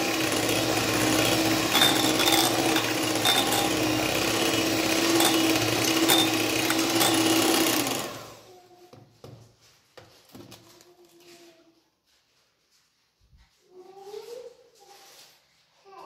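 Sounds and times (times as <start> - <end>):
electric hand mixer running: 0.0 - 8.5.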